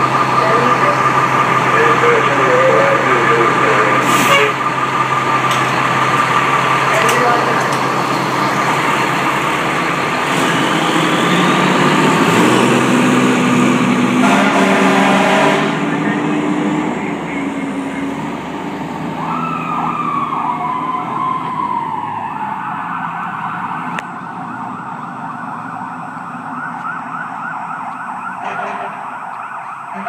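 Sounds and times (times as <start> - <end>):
fire engine accelerating: 0.0 - 30.0
siren wailing: 0.0 - 30.0
horn blast: 1.7 - 4.7, 14.0 - 16.1.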